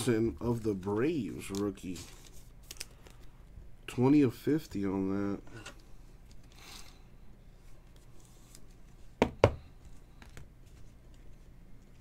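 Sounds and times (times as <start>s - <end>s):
trading cards rustling: 0.4s - 3.4s.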